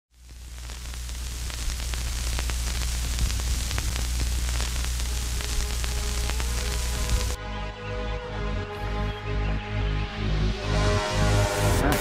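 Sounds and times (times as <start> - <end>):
static hiss with crackling clicks: 0.1 - 7.4.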